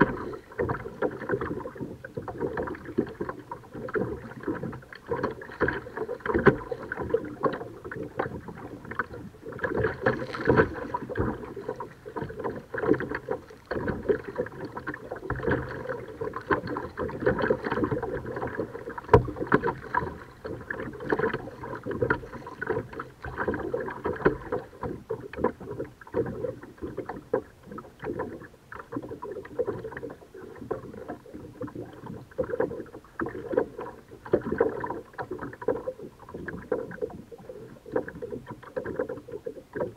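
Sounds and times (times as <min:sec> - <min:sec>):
water splashing against kayak: 0:00.0 - 0:39.9.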